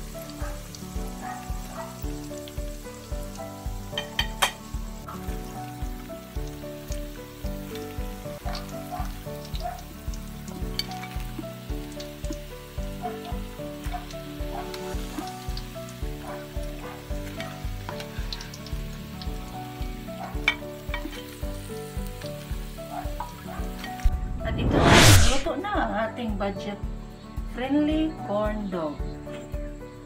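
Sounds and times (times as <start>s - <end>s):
background music with steady beat: 0.0s - 16.7s
oil sizzling and crackling: 0.0s - 25.5s.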